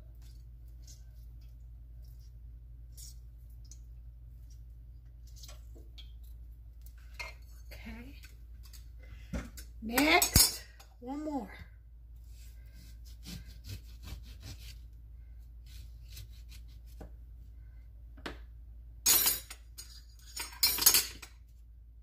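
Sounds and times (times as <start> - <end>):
utensils and dishes clinking: 19.1 - 21.4.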